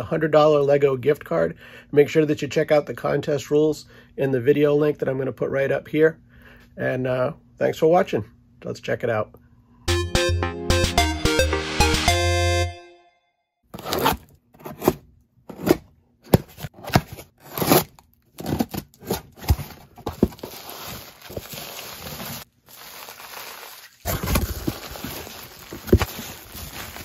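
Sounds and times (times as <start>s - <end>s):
scissors slitting packing tape: 13.8s - 19.8s
cardboard flaps rustling: 13.8s - 27.0s
bubble wrap crinkling: 16.7s - 27.0s.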